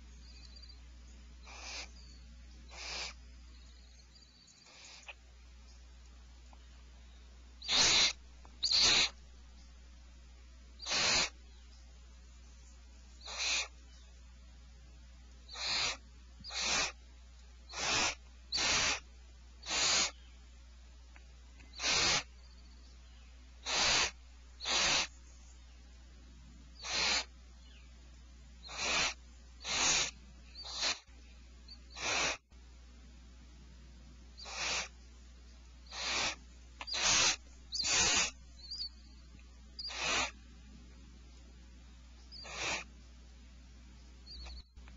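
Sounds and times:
barn owls screeching: 1.4 - 2.0, 2.7 - 3.2, 4.6 - 5.2, 7.6 - 9.2, 10.8 - 11.4, 13.2 - 13.8, 15.5 - 17.0, 17.7 - 20.2, 21.7 - 22.4, 23.6 - 25.2, 26.8 - 27.3, 28.6 - 31.1, 31.7 - 32.4, 34.4 - 35.0, 35.8 - 39.0, 39.8 - 40.4, 42.3 - 42.9, 44.3 - 44.7.

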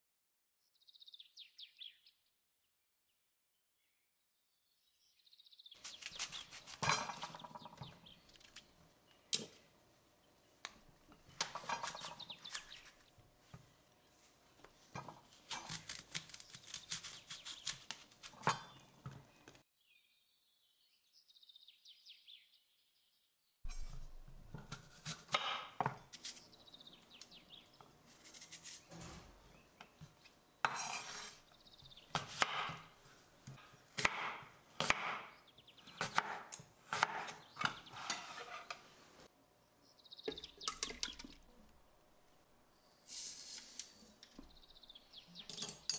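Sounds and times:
utensils and dishes clinking: 45.4 - 45.9.

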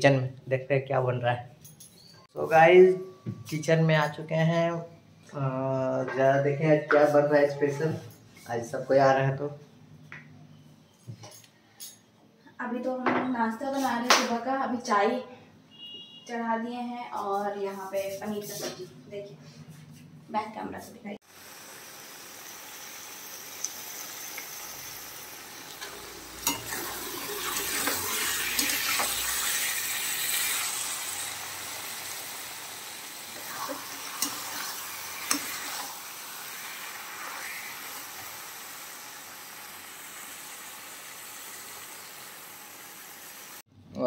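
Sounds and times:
food sizzling in a pan: 21.2 - 43.7.

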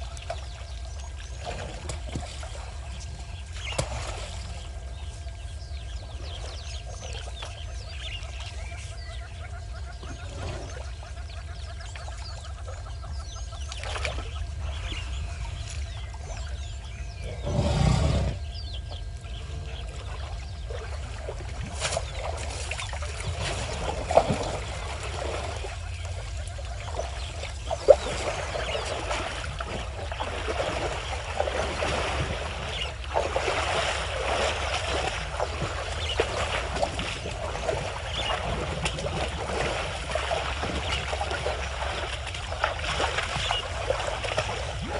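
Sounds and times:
water sloshing and splashing: 0.0 - 17.8, 18.4 - 44.9
birds calling: 0.0 - 44.9
low rumble: 0.0 - 44.9.

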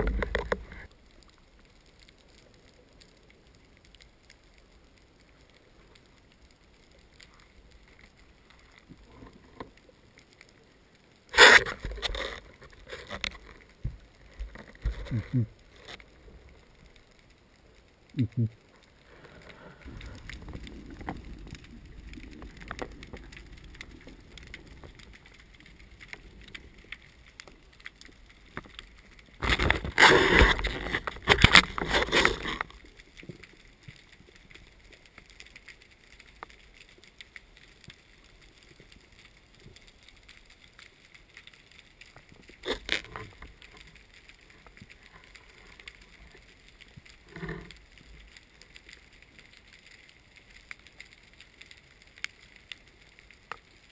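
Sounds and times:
low underwater rumbling: 19.0 - 33.9.

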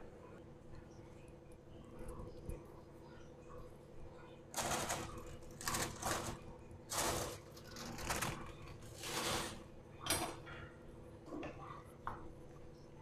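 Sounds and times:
aluminium foil crinkling: 4.5 - 9.7.

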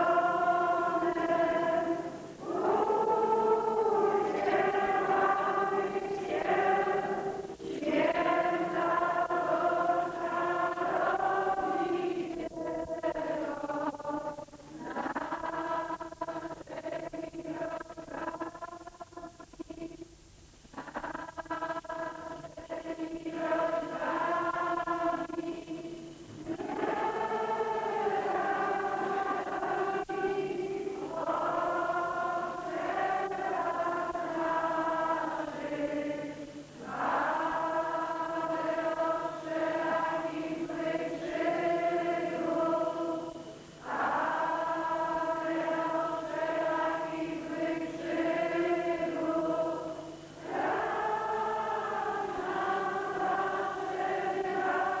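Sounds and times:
group singing a hymn: 0.0 - 20.0, 20.7 - 55.0.

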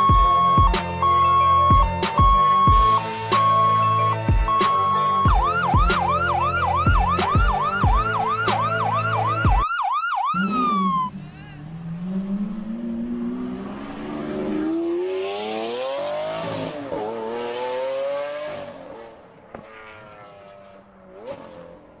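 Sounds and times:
background music with beat: 0.0 - 9.6
toy electronic siren: 0.0 - 11.1
engine-like rev with whoosh: 10.4 - 21.9.

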